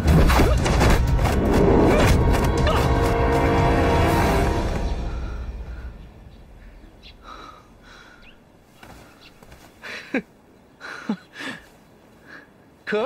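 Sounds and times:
faint breathy sounds: 0:05.1 - 0:10.1.

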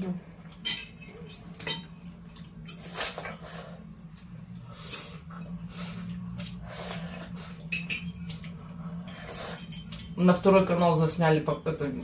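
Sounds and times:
steady low hum: 0:00.0 - 0:12.0
forks clinking on plates: 0:00.5 - 0:02.1, 0:07.7 - 0:08.5.

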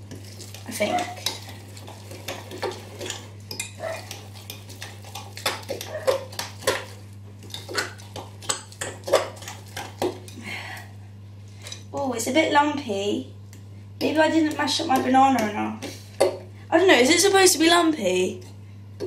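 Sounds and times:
spoon stirring in glass bowl: 0:00.0 - 0:10.4.

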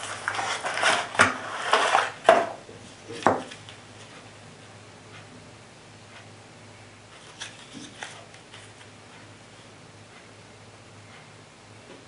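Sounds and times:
cardboard box rustling and scraping: 0:00.0 - 0:02.2.

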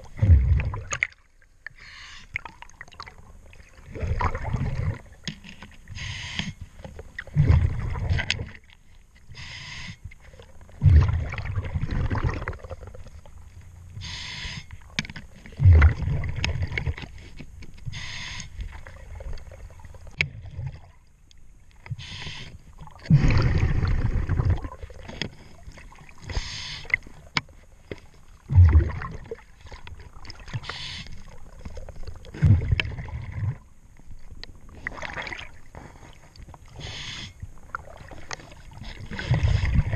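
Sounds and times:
bubbling exhaled air underwater: 0:00.0 - 0:05.2, 0:07.2 - 0:08.6, 0:10.3 - 0:13.4, 0:15.5 - 0:17.1, 0:22.7 - 0:27.3, 0:28.4 - 0:33.7, 0:36.7 - 0:39.9
regulator hiss on inhale: 0:06.0 - 0:06.6, 0:09.3 - 0:10.2, 0:14.0 - 0:14.8, 0:17.9 - 0:18.6, 0:22.0 - 0:22.6, 0:26.3 - 0:27.1, 0:30.6 - 0:31.3, 0:35.9 - 0:37.4.

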